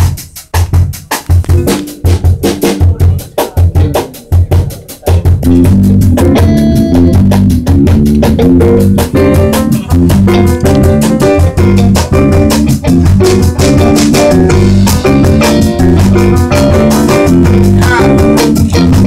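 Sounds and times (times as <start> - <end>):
jazz drum kit playing: 0.0 - 19.0
latin jazz band playing: 0.0 - 19.0.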